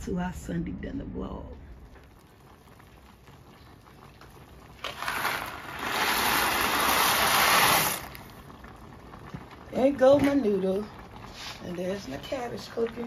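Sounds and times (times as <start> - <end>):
dry pasta rattling into pot: 4.8 - 8.1.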